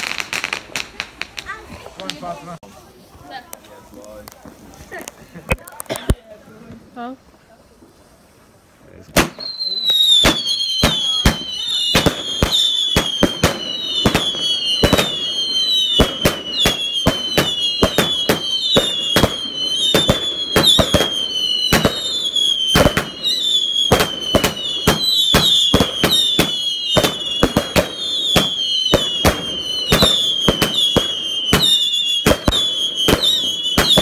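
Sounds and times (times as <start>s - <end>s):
fireworks bangs: 0.0s - 2.4s, 9.0s - 34.0s
fireworks high whistles: 9.2s - 34.0s.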